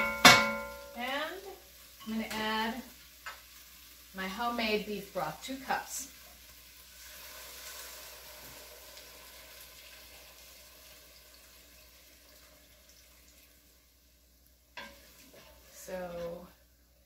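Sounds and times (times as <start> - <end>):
faint sizzle: 0.0 - 17.0
broth pouring into pot: 6.1 - 16.1.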